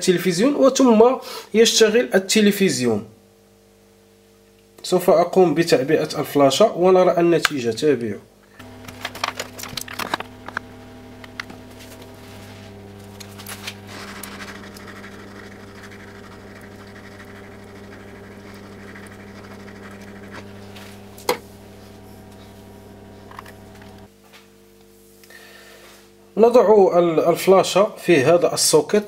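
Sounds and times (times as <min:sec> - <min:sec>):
low fan hum: 0:08.4 - 0:24.1
hot air hissing: 0:08.6 - 0:24.1.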